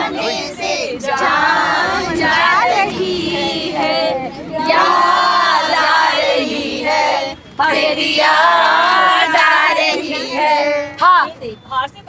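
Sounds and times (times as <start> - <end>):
group singing unaccompanied: 0.0 - 11.3.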